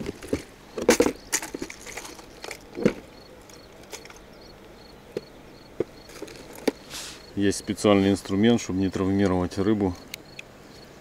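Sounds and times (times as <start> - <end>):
plastic box clicks and knocks: 0.0 - 3.1.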